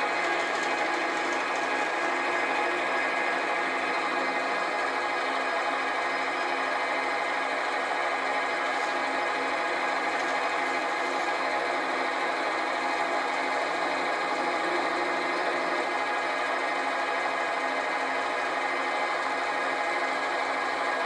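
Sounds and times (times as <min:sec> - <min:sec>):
parting tool cutting metal: 0:00.0 - 0:02.4
metal lathe motor whine: 0:00.0 - 0:21.0.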